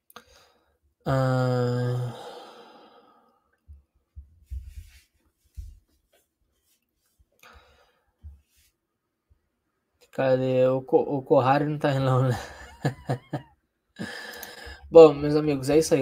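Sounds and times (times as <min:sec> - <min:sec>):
man sighing: 0:01.1 - 0:03.3, 0:14.0 - 0:14.9.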